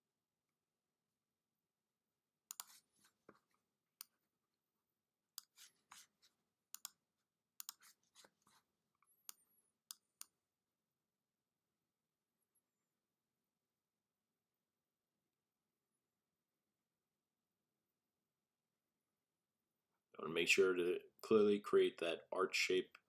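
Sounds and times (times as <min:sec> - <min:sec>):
faint computer mouse clicks: 0:02.5 - 0:02.8, 0:06.7 - 0:07.0, 0:07.6 - 0:08.3.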